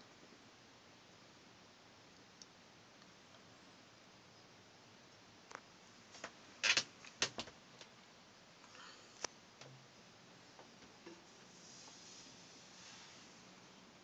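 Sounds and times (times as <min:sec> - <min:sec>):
faint steady hiss: 0:00.0 - 0:14.0
light sharp clicks and knocks: 0:05.5 - 0:08.0, 0:08.6 - 0:09.9.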